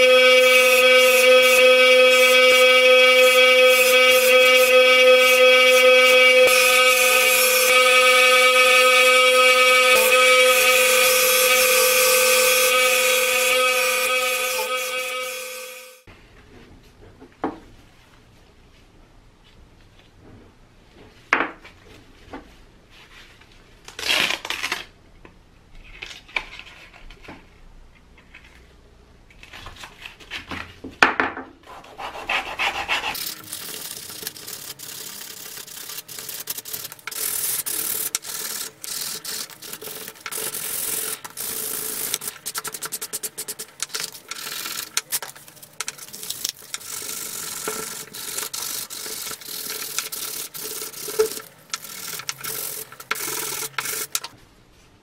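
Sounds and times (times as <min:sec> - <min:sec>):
sanding block rubbing wood: 0:00.0 - 0:15.6, 0:31.7 - 0:54.3.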